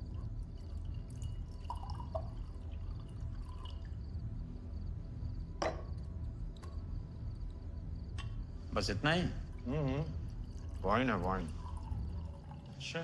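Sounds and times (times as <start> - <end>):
wine pouring into a glass: 0.0 - 4.2, 9.2 - 13.0.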